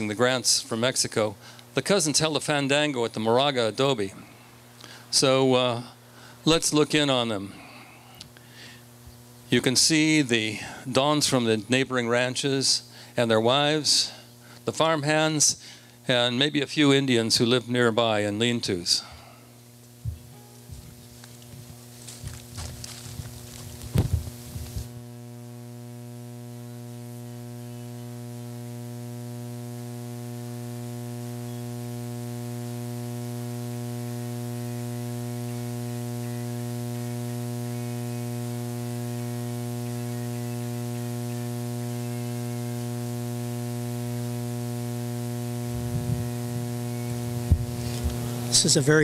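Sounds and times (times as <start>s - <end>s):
electrical mains hum: 0.0s - 49.0s.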